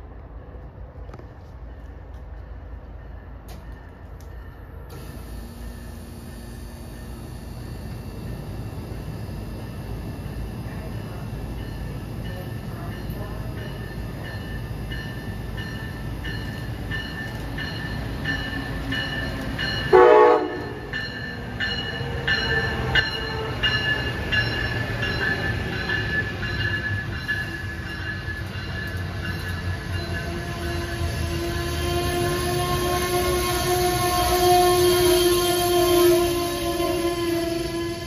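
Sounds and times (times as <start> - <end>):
rumble of train coaches rolling: 0.0 - 38.0
locomotive bell ringing: 1.8 - 38.0
train horn blast: 19.9 - 20.8, 30.4 - 38.0.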